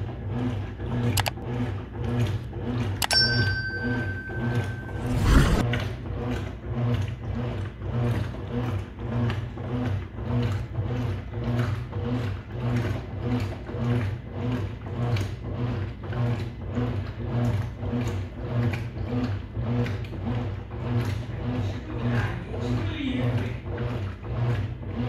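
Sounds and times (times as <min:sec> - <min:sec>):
washing machine motor hum: 0:00.0 - 0:25.0
washing machine agitator knocking: 0:06.2 - 0:25.0.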